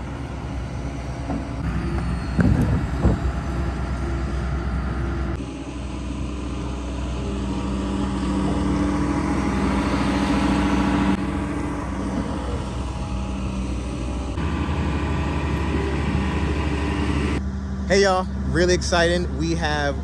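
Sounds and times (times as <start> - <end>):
heavy machinery engine running: 0.0 - 20.0.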